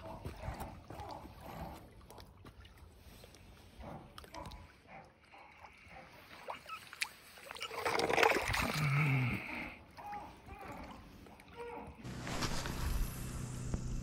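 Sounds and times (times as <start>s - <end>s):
water lapping at shoreline: 0.0s - 14.0s.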